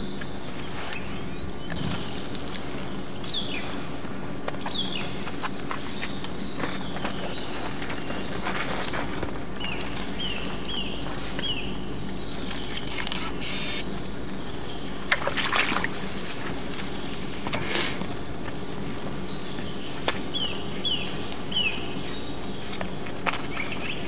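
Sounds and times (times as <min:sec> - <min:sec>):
dry grass and twigs rustling: 0:00.0 - 0:24.0
steady hum and hiss: 0:00.0 - 0:24.0
bird chirping: 0:09.5 - 0:15.0, 0:18.9 - 0:24.0.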